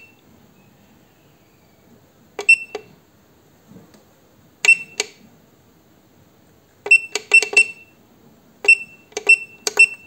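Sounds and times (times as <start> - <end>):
keypad beeps: 2.4 - 2.9, 4.6 - 5.2, 6.9 - 8.0, 8.6 - 10.0.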